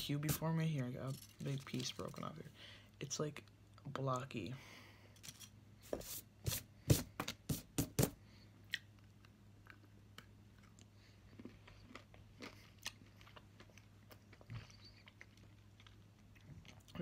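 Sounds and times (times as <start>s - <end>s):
chewing crunches: 8.7s - 17.0s.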